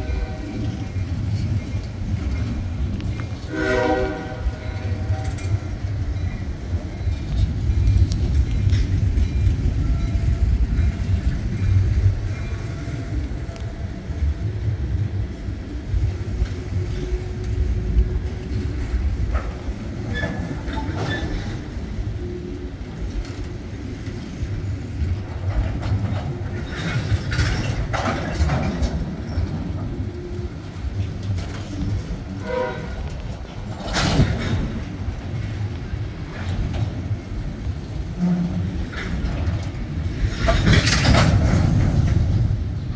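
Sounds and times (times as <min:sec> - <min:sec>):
freight train rolling past: 0:00.0 - 0:42.9
wheel and coupler clatter: 0:22.9 - 0:42.9.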